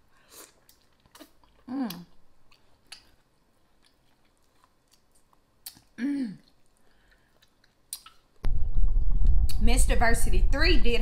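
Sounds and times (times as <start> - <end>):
chewing and lip smacks: 0.4 - 8.4
person humming mmm: 1.6 - 2.2.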